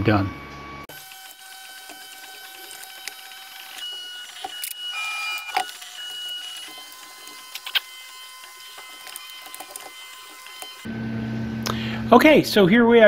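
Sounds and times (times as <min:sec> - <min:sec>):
packing tape: 0:01.1 - 0:10.9.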